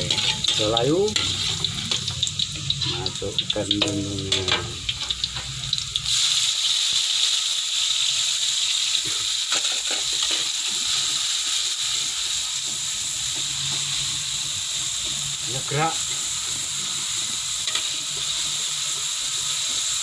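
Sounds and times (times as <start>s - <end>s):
metal spatula scraping: 0.0s - 5.5s, 9.5s - 11.1s, 13.3s - 20.0s
noodles sizzling in hot oil: 0.0s - 20.0s.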